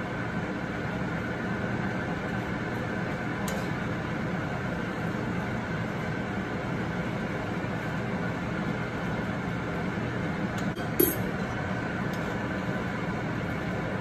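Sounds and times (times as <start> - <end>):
fan humming: 0.0 - 14.0
metal spoon clinking on pan: 10.8 - 11.3.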